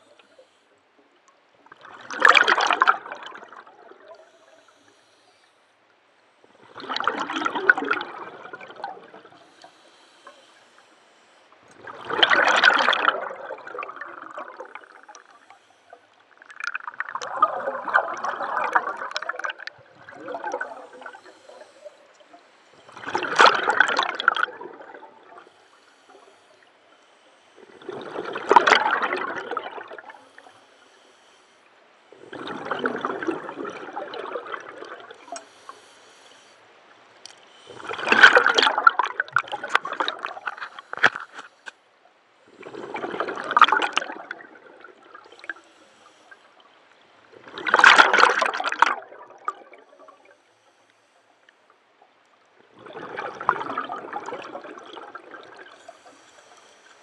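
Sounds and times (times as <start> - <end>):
regulator bubbles gurgling: 1.6 - 4.6, 6.6 - 9.8, 11.8 - 15.6, 16.3 - 26.4, 27.6 - 30.5, 32.1 - 35.5, 37.6 - 41.2, 42.5 - 45.8, 47.2 - 50.4, 52.6 - 56.4.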